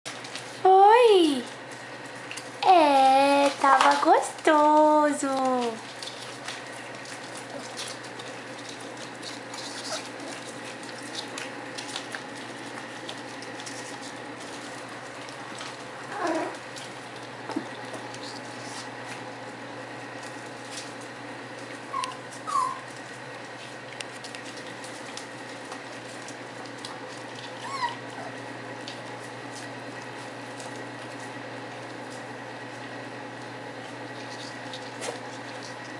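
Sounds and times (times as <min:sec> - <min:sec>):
clicks and rustles: 0:01.5 - 0:15.9, 0:20.2 - 0:27.9
puppies whimpering: 0:09.2 - 0:11.3, 0:16.0 - 0:16.7, 0:21.9 - 0:22.9, 0:27.4 - 0:28.5.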